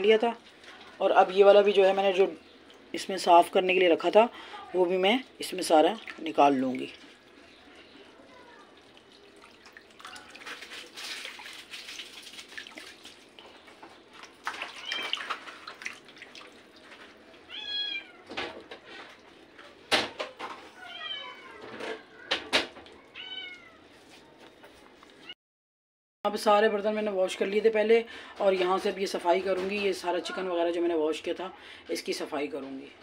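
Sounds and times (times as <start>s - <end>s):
water splashing and dripping: 2.5s - 3.7s, 5.0s - 20.1s.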